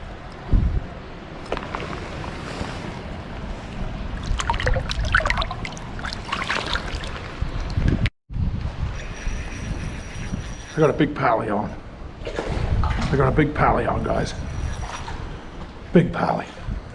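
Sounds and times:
water splashing: 4.1 - 8.1.

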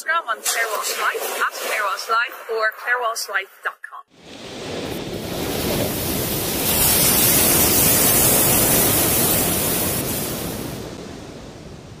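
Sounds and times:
sea surf washing onto beach: 0.4 - 2.4, 4.1 - 12.0.

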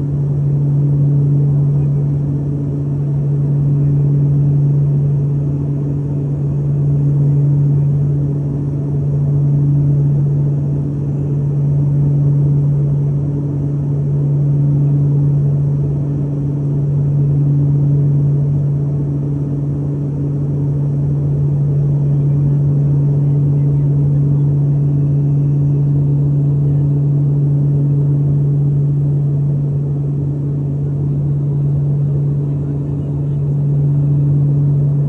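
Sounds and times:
propeller aircraft engine drone: 0.0 - 35.0.

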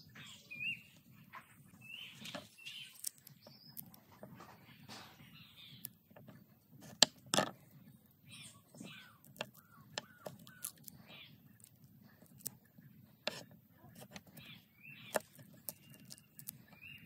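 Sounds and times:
birds chirping and calling: 0.0 - 17.0
sharp clicks and knocks: 5.8 - 7.7, 8.8 - 10.9, 15.1 - 16.6.

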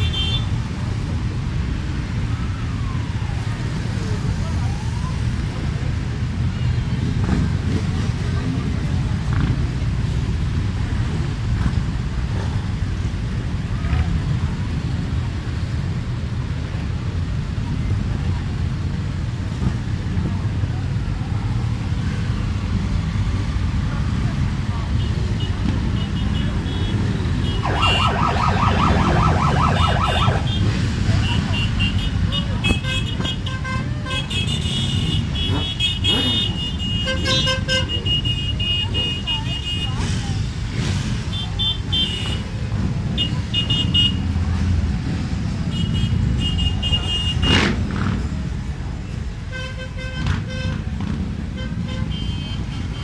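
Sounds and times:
motorcycle engines rumbling: 0.0 - 53.0
yelping siren: 27.5 - 30.8.

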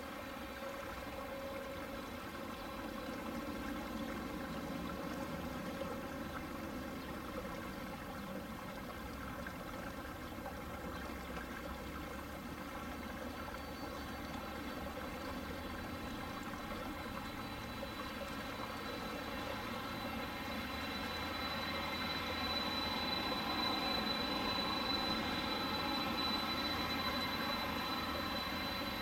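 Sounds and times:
jet engine whine: 0.0 - 29.0
high whistle: 15.8 - 29.0.

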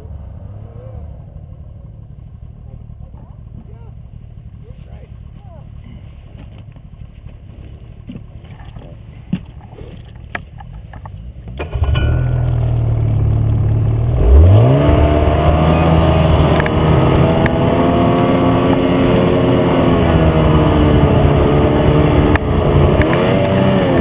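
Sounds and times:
snowmobile engine revving: 11.6 - 24.0.

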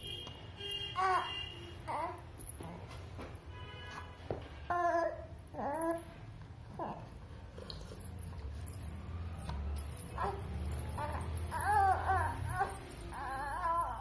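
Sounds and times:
infant cooing: 4.7 - 6.1, 10.2 - 14.0.

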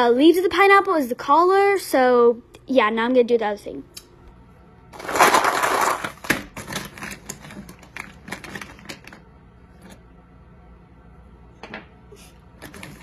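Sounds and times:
crayons rattling in plastic tub: 5.0 - 9.2.

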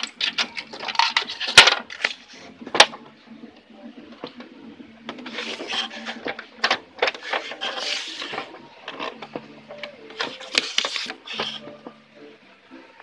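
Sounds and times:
printer mechanism clicking and rattling: 0.0 - 2.2, 5.1 - 9.5.

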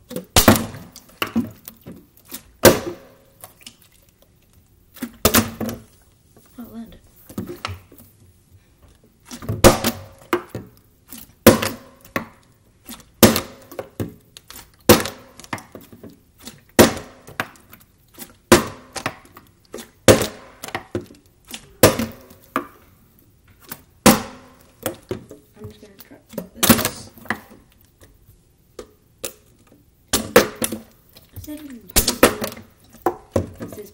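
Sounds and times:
plastic bottles thudding on stone: 0.0 - 3.2, 5.0 - 5.9, 9.3 - 10.8, 11.4 - 12.4, 13.1 - 14.2, 14.8 - 17.7, 18.4 - 22.8, 24.0 - 27.7, 30.1 - 33.9.

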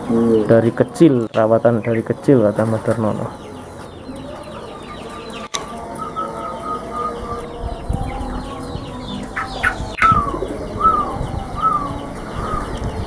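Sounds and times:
chickens clucking: 0.0 - 13.0
doves calling: 0.0 - 13.0.

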